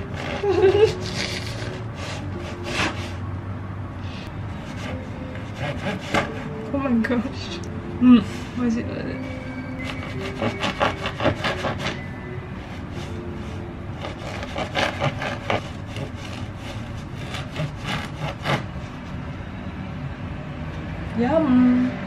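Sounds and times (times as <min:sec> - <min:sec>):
knife sawing through bread crust: 0:00.0 - 0:03.2, 0:04.6 - 0:06.6, 0:09.8 - 0:12.0, 0:14.0 - 0:18.7.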